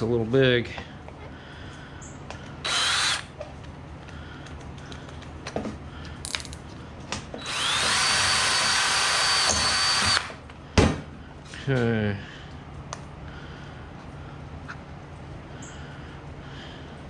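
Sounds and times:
cordless drill whining: 2.6s - 3.3s, 7.4s - 10.4s.

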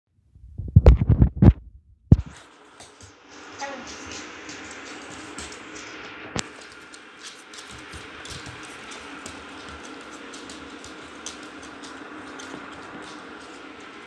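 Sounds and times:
microphone clicks and rubbing: 0.4s - 2.4s.

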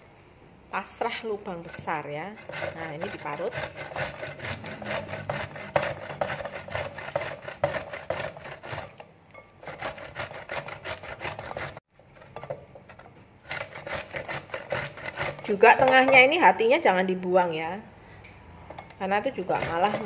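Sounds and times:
pineapple grated on metal grater: 1.7s - 9.0s, 9.6s - 11.8s, 13.4s - 16.1s, 19.2s - 20.0s.

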